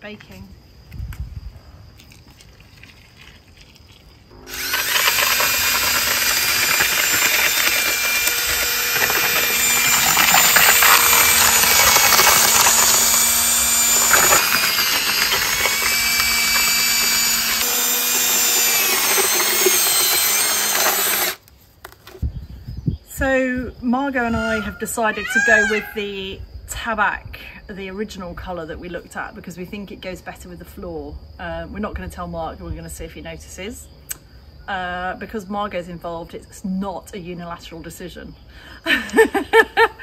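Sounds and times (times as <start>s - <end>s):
cordless drill driving paddle mixer: 4.3s - 21.4s.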